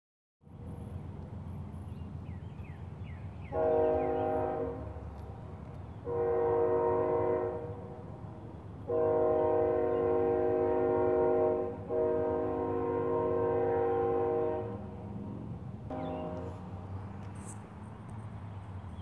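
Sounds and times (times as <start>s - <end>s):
low rumble of passing train: 0.4s - 19.0s
train horn blasts: 3.5s - 5.2s, 6.0s - 8.1s, 8.8s - 15.0s, 15.9s - 17.1s.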